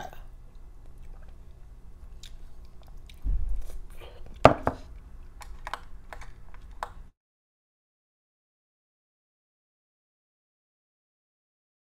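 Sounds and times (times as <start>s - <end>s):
low thump: 3.2s - 3.6s.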